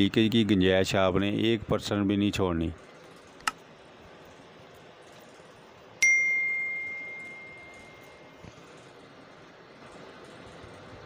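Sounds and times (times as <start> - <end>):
bright bell ding: 6.0 - 8.4.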